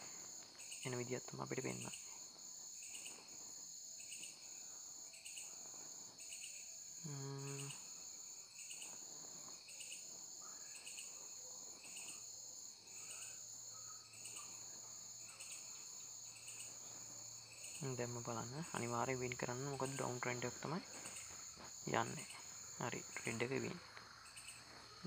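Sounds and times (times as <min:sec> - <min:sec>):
crickets chirping: 0:00.0 - 0:25.0
person humming: 0:07.0 - 0:07.8.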